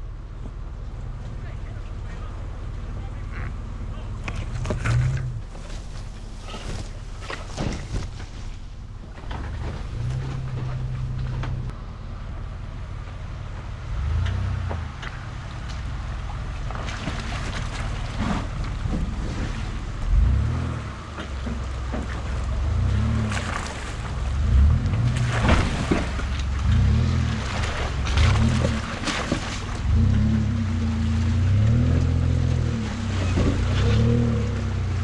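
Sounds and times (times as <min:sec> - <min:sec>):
pickup engine revving: 0:02.9 - 0:12.6, 0:16.6 - 0:35.0
water splashing: 0:15.2 - 0:20.1, 0:21.7 - 0:34.9.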